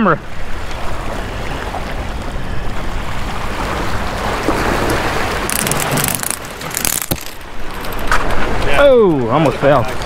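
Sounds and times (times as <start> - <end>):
small waves splashing on rocks: 3.4 - 10.0.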